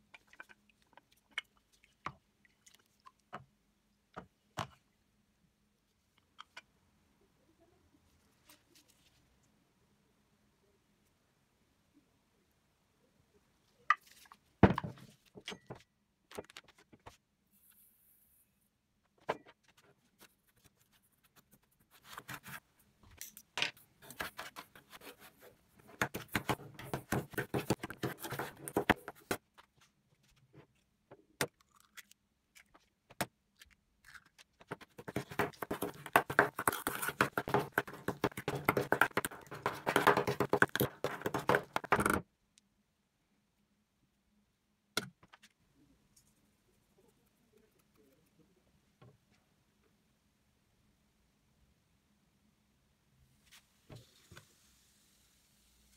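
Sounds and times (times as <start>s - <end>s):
metal spoon scraping enamel bowl: 35.0s - 42.0s.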